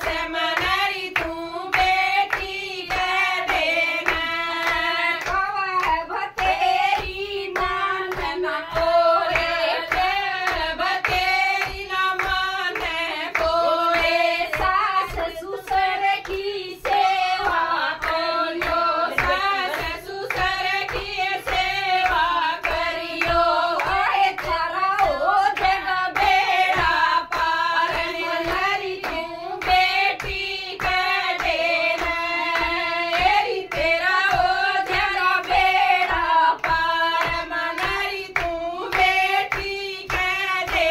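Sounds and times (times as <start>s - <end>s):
rhythmic hand clapping: 0.0s - 40.9s
women singing devotional song: 0.0s - 40.9s.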